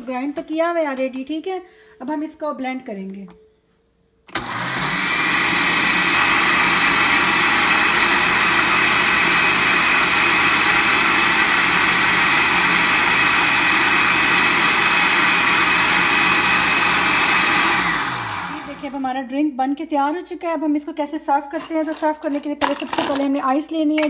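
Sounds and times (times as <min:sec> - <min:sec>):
blender motor whine: 0:04.3 - 0:19.1.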